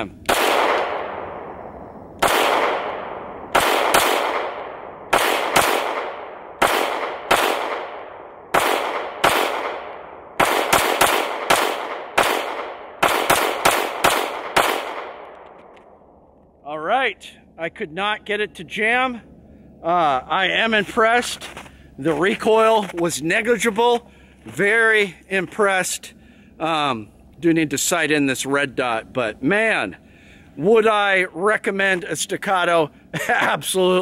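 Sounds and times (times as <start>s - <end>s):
pistol shots with echo: 0.2s - 15.7s.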